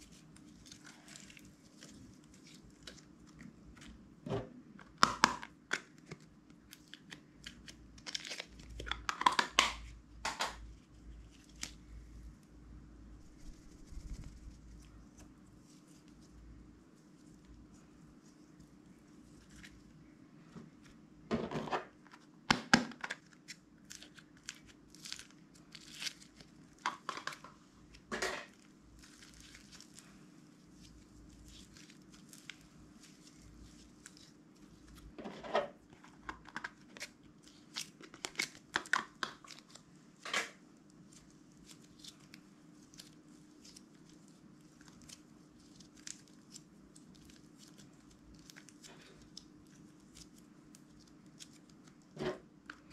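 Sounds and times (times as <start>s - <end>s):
hands squeezing sticky slime: 0.0s - 4.0s, 23.2s - 28.0s, 28.6s - 35.2s, 35.8s - 40.0s, 40.8s - 52.9s.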